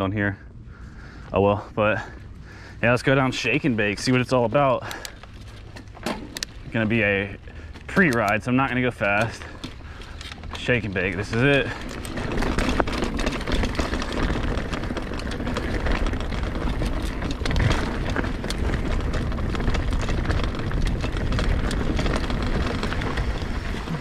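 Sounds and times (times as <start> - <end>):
bike tyres rumbling on dirt trail: 0.0 - 24.0
bike rattling over roots and rocks: 0.8 - 24.0.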